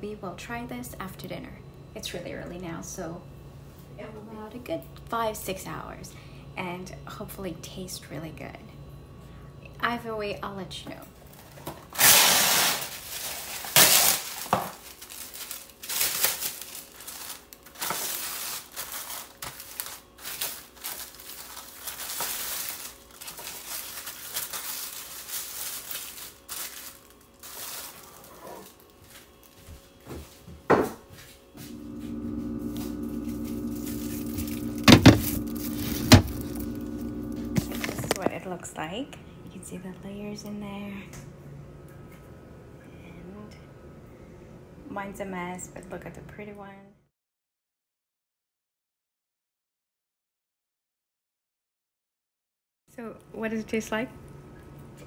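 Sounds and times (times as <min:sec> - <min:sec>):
refrigerator hum: 0:00.1 - 0:30.6, 0:31.6 - 0:39.0
plastic cling wrap crinkling: 0:11.9 - 0:29.7, 0:31.7 - 0:38.3.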